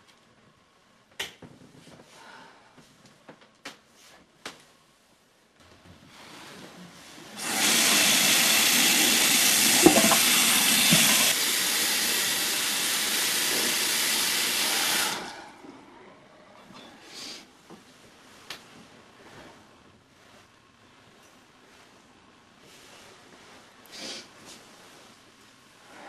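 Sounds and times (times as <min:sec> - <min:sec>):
faucet water pouring into sink: 0:07.4 - 0:15.3.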